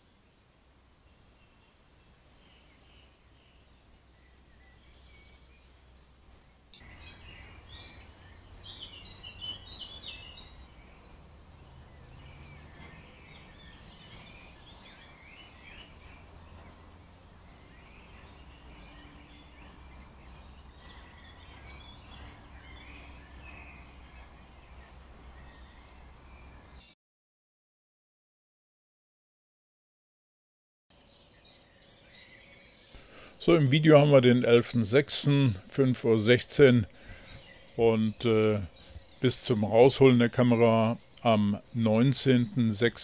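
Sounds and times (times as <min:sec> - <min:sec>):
songbirds singing and calling: 0:00.0 - 0:27.0, 0:30.9 - 0:43.0
low steady hum: 0:33.0 - 0:43.0.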